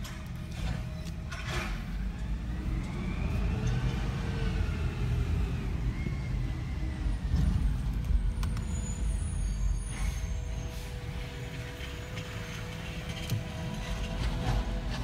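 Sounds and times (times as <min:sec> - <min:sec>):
garbage truck engine rumble: 0:00.0 - 0:15.0
truck engine whine: 0:00.0 - 0:15.0.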